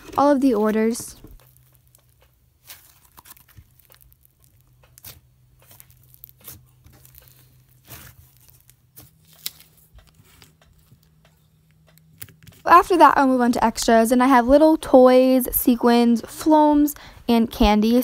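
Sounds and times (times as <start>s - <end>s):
slime crackling and tearing: 0.6s - 10.4s.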